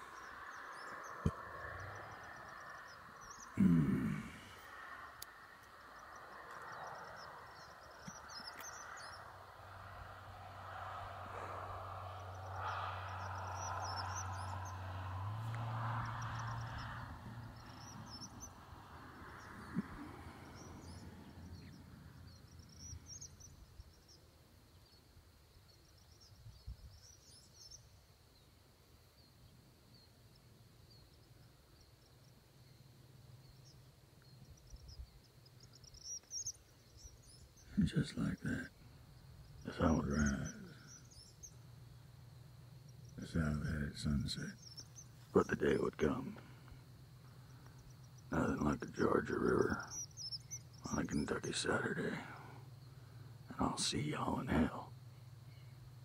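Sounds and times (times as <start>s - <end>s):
birds chirping: 0.0s - 25.1s, 33.4s - 56.0s
broad rushing noise: 9.0s - 21.2s.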